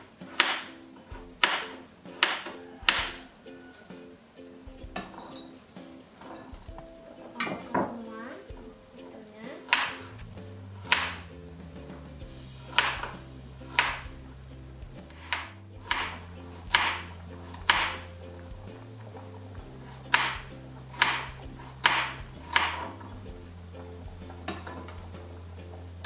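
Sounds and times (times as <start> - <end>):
soft background music: 0.0 - 26.0
knife chopping carrot on board: 0.3 - 0.7, 1.4 - 3.2, 9.6 - 11.3, 12.7 - 14.1, 15.0 - 18.1, 20.0 - 22.9.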